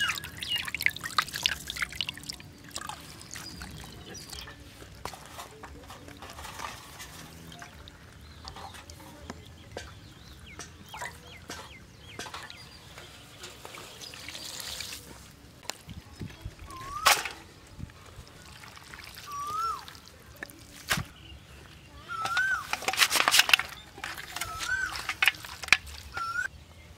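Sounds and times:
bird calls: 0:00.0 - 0:01.1, 0:16.7 - 0:17.4, 0:19.2 - 0:20.2, 0:21.0 - 0:26.5.

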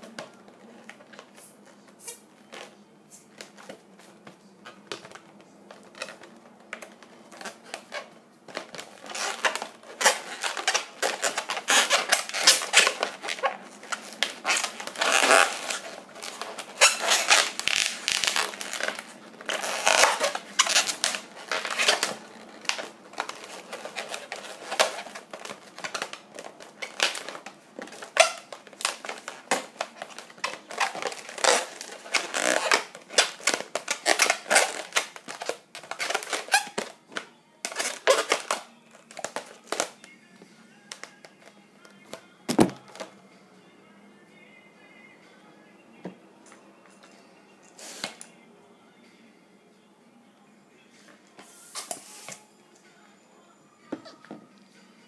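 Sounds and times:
balloons squeaking and rubbing: 0:00.9 - 0:03.7, 0:04.6 - 0:37.0, 0:37.6 - 0:40.0.

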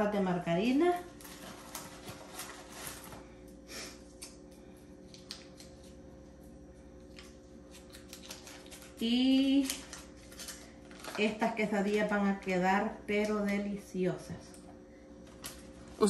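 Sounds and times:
paper wrapper rustling: 0:01.1 - 0:03.4, 0:07.8 - 0:11.6.

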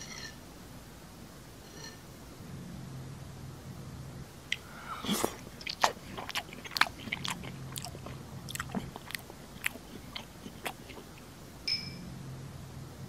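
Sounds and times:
mouth eating sounds: 0:04.5 - 0:11.4.

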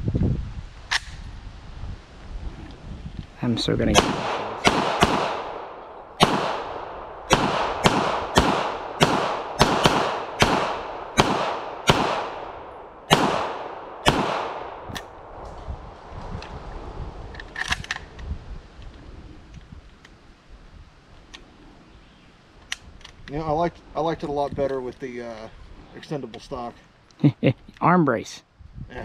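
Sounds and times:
gunshots with echo: 0:03.9 - 0:14.9.

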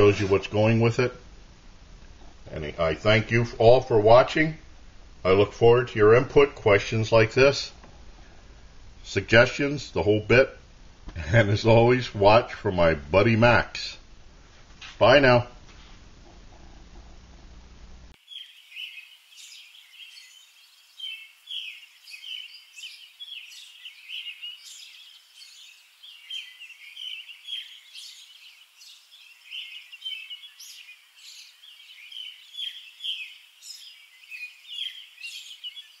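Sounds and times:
small birds chirping: 0:00.0 - 0:01.1, 0:18.1 - 0:36.0.

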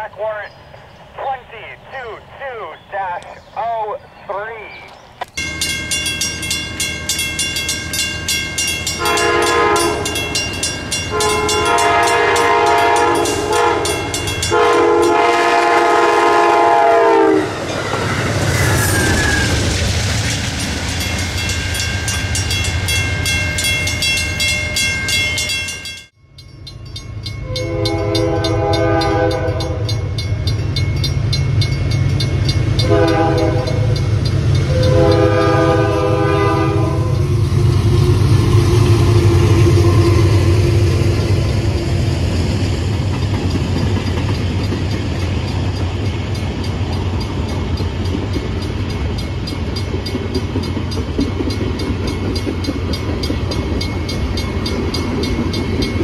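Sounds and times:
crossing bells ringing: 0:05.4 - 0:16.4, 0:20.5 - 0:37.4, 0:43.0 - 0:56.0
locomotive horn blasts: 0:09.0 - 0:10.4, 0:11.1 - 0:17.5, 0:27.4 - 0:30.0, 0:32.8 - 0:34.0, 0:34.6 - 0:37.2.

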